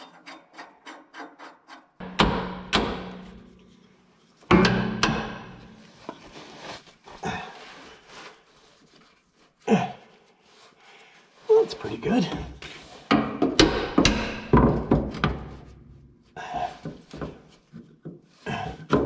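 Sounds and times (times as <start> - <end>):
loud metal clangs: 2.0 - 3.7, 4.5 - 5.9, 13.1 - 15.6.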